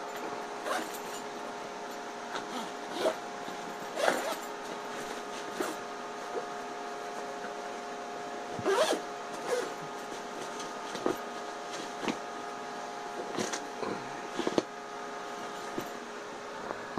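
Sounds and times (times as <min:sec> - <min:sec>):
steady background hum: 0:00.0 - 0:16.9
nylon backpack rustling: 0:00.6 - 0:01.2, 0:03.8 - 0:05.8, 0:08.6 - 0:12.2.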